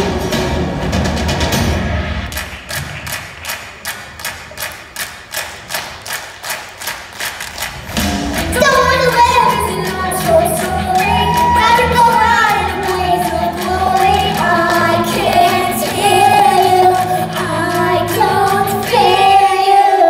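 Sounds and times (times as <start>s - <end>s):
children singing: 8.0s - 20.0s.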